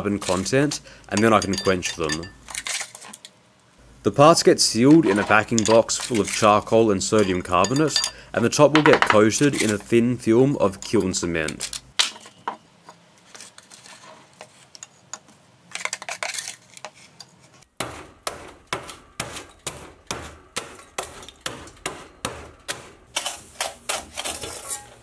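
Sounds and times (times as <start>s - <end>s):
spoon scraping in plastic tub: 4.8s - 8.1s, 22.8s - 25.0s
charcoal pounded in saucepan: 17.8s - 25.0s.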